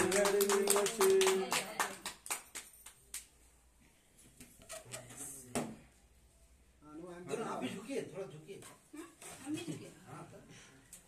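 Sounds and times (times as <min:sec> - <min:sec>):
people clapping: 0:00.0 - 0:03.4.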